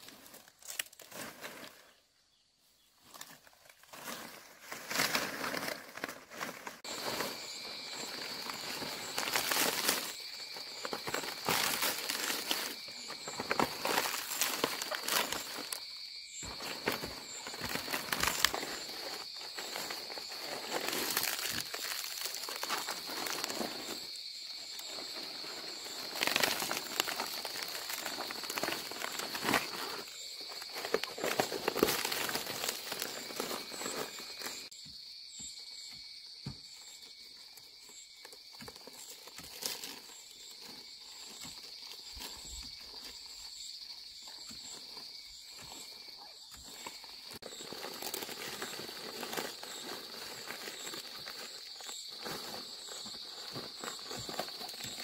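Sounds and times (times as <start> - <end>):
rustling on dry ground: 0.0 - 2.1, 2.7 - 34.7, 36.7 - 55.0.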